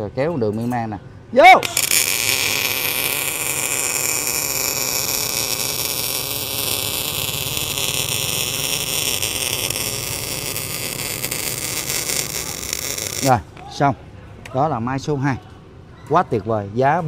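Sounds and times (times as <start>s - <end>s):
welding arc crackling hiss: 1.6s - 13.4s.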